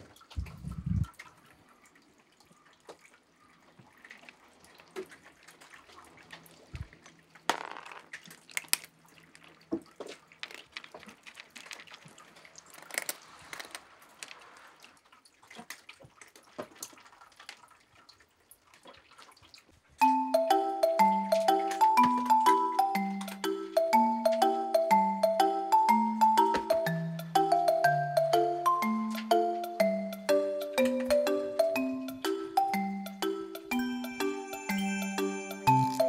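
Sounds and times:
cats crunching dry kibble: 8.1 - 14.4.

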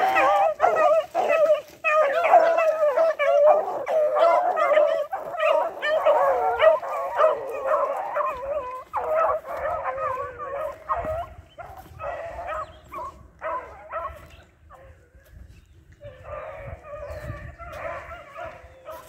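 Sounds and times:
hounds baying: 0.0 - 19.0
low wind rumble: 10.2 - 18.8.

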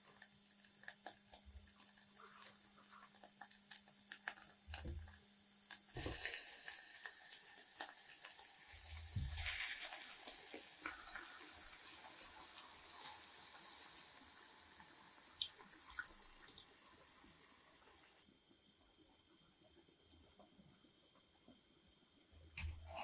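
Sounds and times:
vegetables sizzling in a saucepan: 0.0 - 18.2.

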